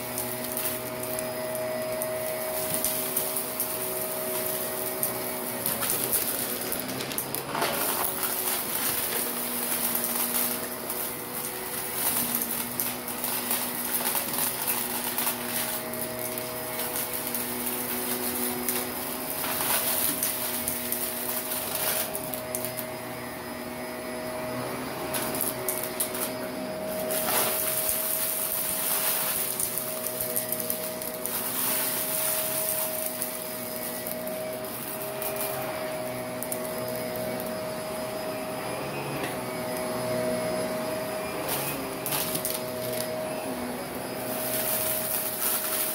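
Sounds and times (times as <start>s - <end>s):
debris crunching and rattling: 0.0s - 22.9s, 25.1s - 37.5s, 41.5s - 43.2s, 44.1s - 45.9s
vacuum cleaner motor whining: 0.0s - 45.9s.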